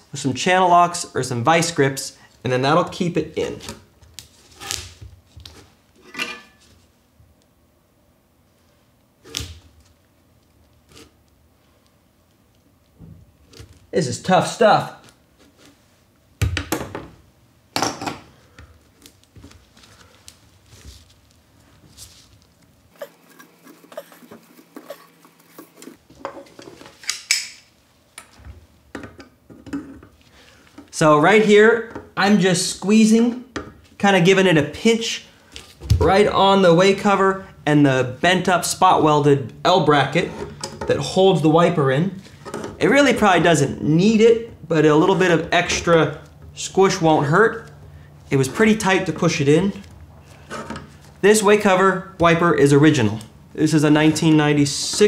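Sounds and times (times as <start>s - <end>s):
scraping rustle: 19.3s - 27.0s.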